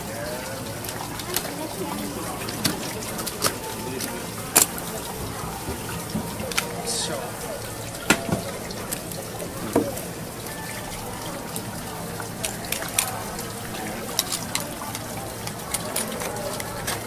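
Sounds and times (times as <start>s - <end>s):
tap water running from hose: 0.0s - 17.0s
sharp clicks and clinks: 14.0s - 17.0s.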